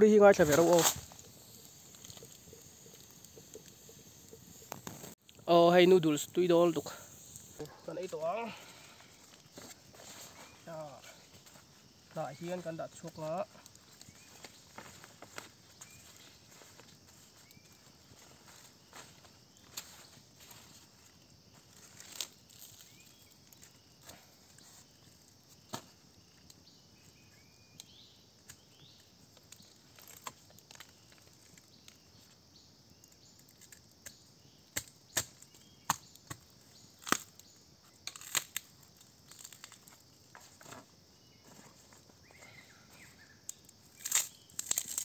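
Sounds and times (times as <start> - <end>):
insects humming: 0.0 - 45.0
knife cracking bamboo tube: 34.8 - 36.4, 37.0 - 37.4, 38.0 - 38.7, 44.0 - 45.0.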